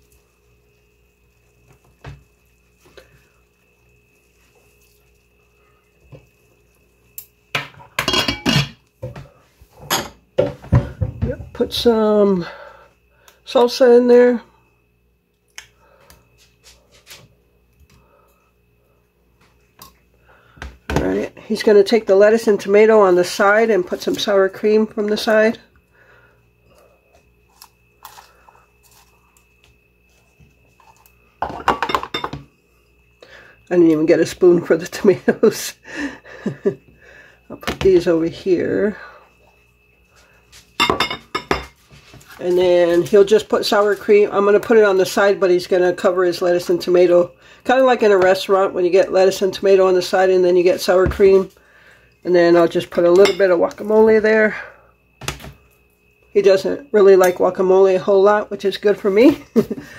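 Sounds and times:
dishes and utensils clattering: 0:07.6 - 0:08.8, 0:31.4 - 0:32.5, 0:40.8 - 0:41.8
lettuce rustling and crunching: 0:27.5 - 0:29.4.

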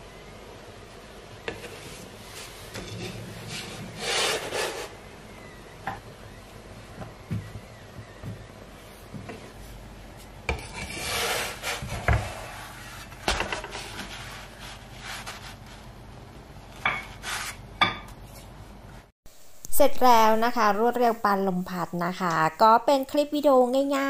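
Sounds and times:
scraping on wooden board: 0:01.5 - 0:05.0, 0:10.5 - 0:15.5.

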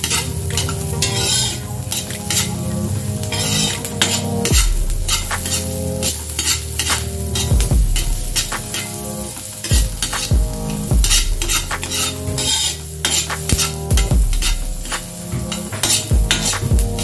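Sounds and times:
metal ladle scraping a wok: 0:00.0 - 0:09.7, 0:10.7 - 0:16.6
vegetables sizzling in oil: 0:00.0 - 0:16.7.

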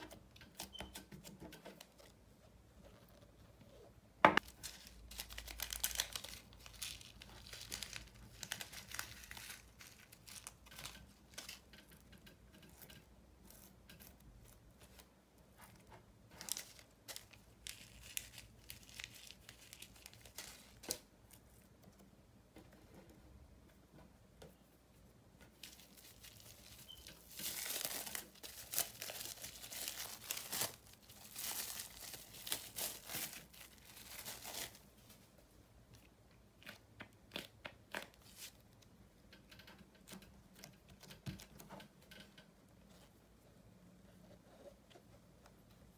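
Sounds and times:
plastic wrap crinkling: 0:04.3 - 0:11.7, 0:16.3 - 0:21.4, 0:25.6 - 0:35.3
fingers working slime: 0:36.5 - 0:38.4.

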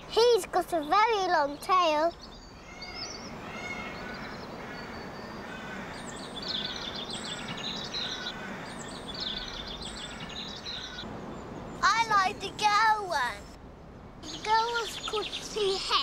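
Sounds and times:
songbirds chirping: 0:00.0 - 0:16.0
outdoor hiss: 0:05.5 - 0:16.0.

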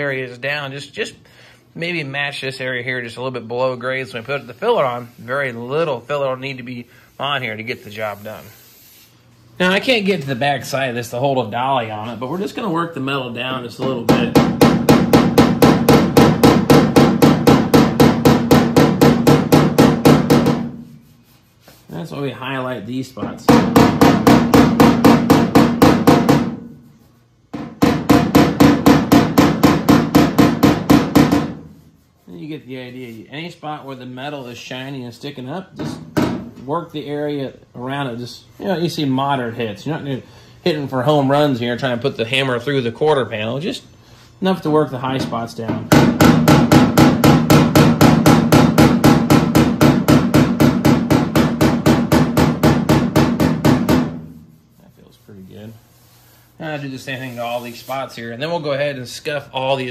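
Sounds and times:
hammer tapping on sheet metal: 0:13.8 - 0:20.9, 0:23.2 - 0:26.8, 0:27.5 - 0:31.8, 0:35.8 - 0:36.6, 0:45.1 - 0:54.4.

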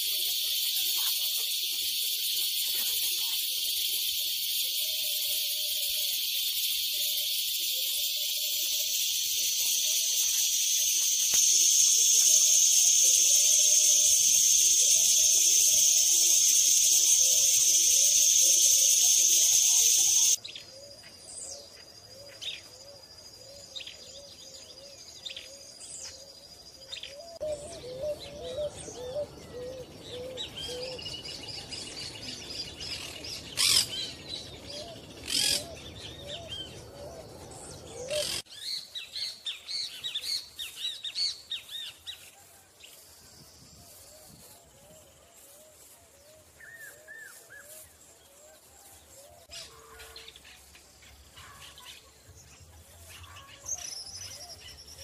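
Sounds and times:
high insect drone: 0:00.0 - 0:20.4
birds chirping and calling: 0:00.0 - 0:20.8, 0:27.0 - 0:42.2.

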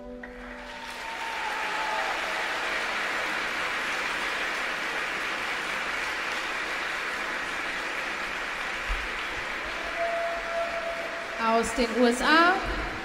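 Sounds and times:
audience applauding: 0:00.3 - 0:13.0.

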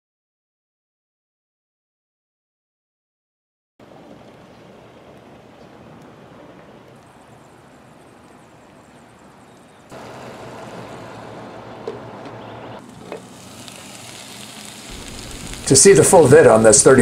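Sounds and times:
faint outdoor background: 0:03.8 - 0:17.0
onions sizzling in a pan: 0:12.8 - 0:17.0.

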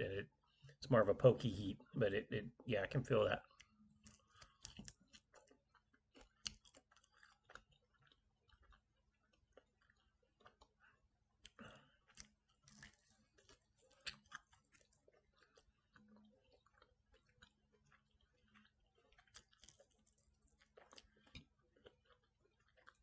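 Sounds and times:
chewing mouth clicks: 0:03.4 - 0:23.0.

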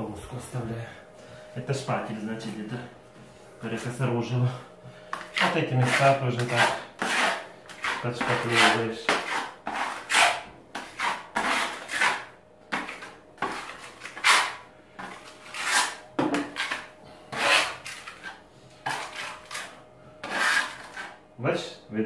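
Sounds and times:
putty knife scraping plaster: 0:05.2 - 0:21.2.

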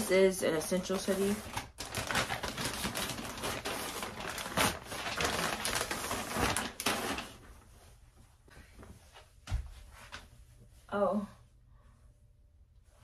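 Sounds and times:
plastic bag crinkling: 0:00.6 - 0:07.5.

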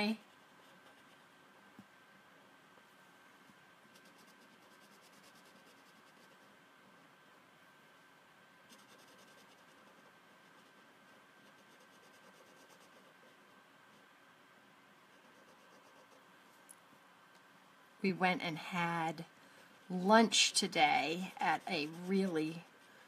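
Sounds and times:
marker scratching on paper: 0:03.9 - 0:06.5, 0:08.7 - 0:13.6, 0:15.1 - 0:16.2, 0:20.4 - 0:22.9.

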